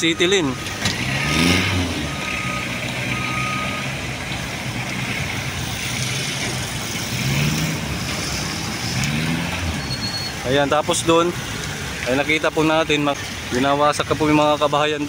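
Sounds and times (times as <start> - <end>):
street traffic: 0.0 - 15.0
short electronic beeps: 1.6 - 3.9, 9.7 - 10.4.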